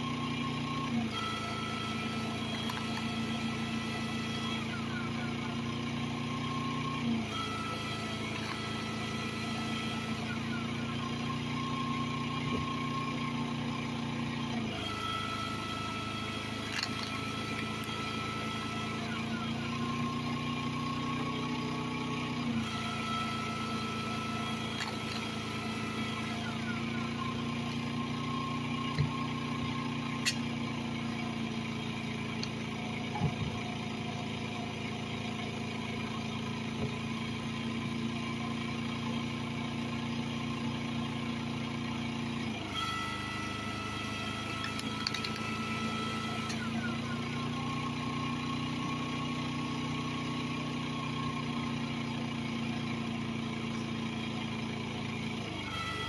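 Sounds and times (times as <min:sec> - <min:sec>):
generator engine running: 0:00.0 - 0:56.0
log splitter motor whine: 0:00.0 - 0:56.0.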